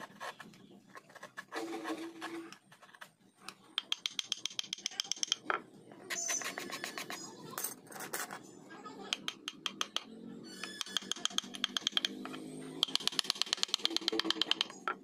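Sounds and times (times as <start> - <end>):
mallet tapping chisel into wood: 3.7 - 5.6, 9.1 - 10.1, 10.7 - 15.0.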